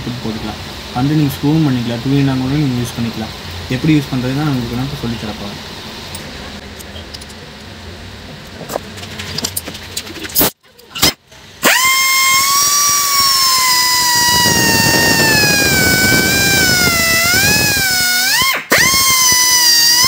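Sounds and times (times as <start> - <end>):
pneumatic air drill whining: 10.4 - 20.0.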